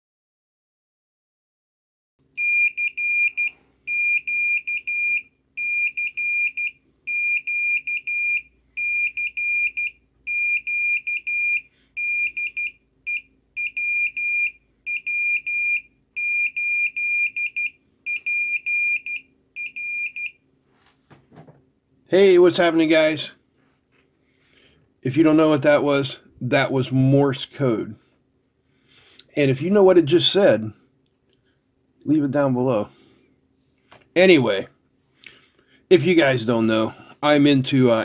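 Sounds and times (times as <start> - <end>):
buzzer beeping morse code: 2.4 - 20.4.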